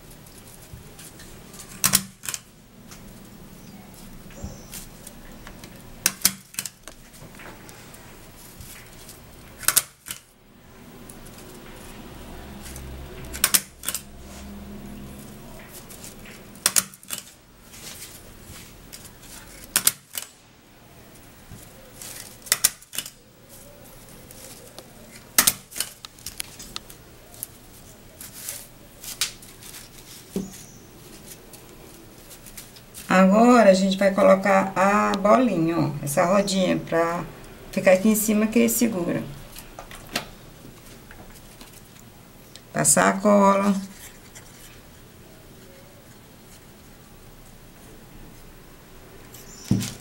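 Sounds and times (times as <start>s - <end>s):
stapler stapling paper: 1.7s - 2.5s, 6.0s - 6.9s, 9.6s - 10.3s, 13.2s - 14.1s, 16.6s - 17.3s, 19.6s - 20.3s, 22.4s - 23.2s.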